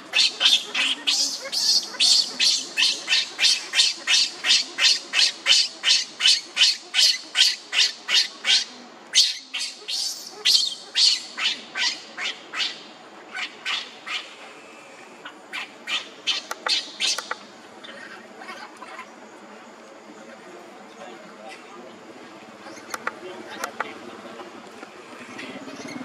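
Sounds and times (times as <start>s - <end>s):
baby monkey screaming: 0.1s - 14.3s.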